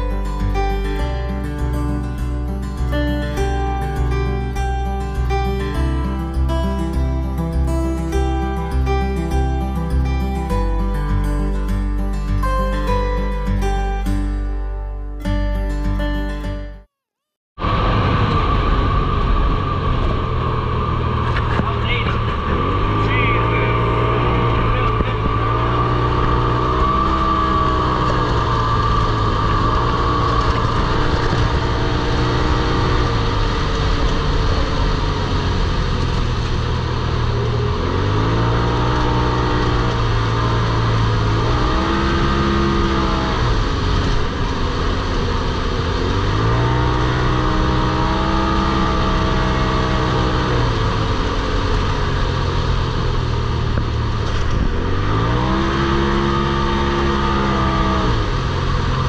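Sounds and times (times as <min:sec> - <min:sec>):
engine revving: 0:17.6 - 0:59.0.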